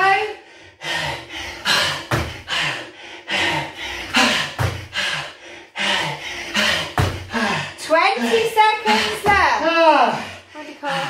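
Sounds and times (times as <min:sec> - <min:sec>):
breathy exhalations: 0:00.4 - 0:11.0
feet thudding on foam mats: 0:01.6 - 0:02.7, 0:04.1 - 0:05.1, 0:06.5 - 0:07.6, 0:08.9 - 0:09.7.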